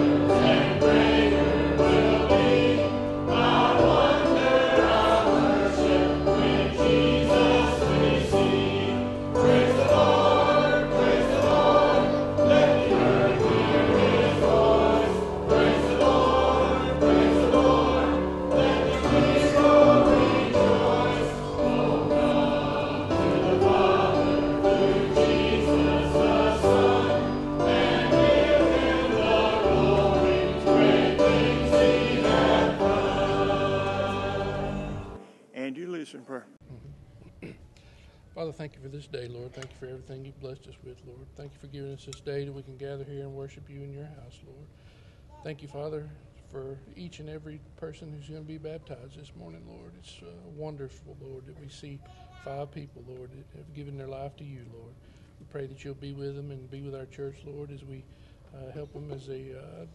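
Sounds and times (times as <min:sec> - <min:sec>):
musical accompaniment: 0:00.0 - 0:35.4
choir singing a hymn: 0:00.0 - 0:35.5.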